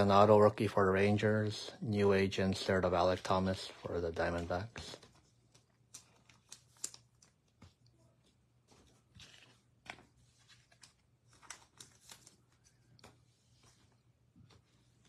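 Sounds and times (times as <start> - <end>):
trading cards clicking and rustling: 3.5 - 7.8, 8.7 - 13.3.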